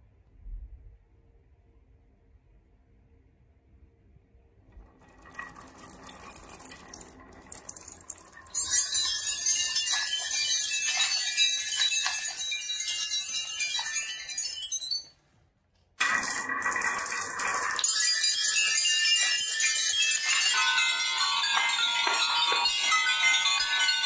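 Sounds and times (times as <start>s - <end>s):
marbles rolling and clattering on wood: 4.8s - 15.2s, 16.0s - 24.0s.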